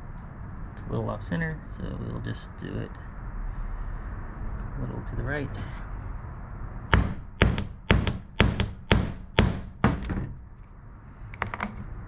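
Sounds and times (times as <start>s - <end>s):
hammer striking metal punch: 6.9s - 10.4s.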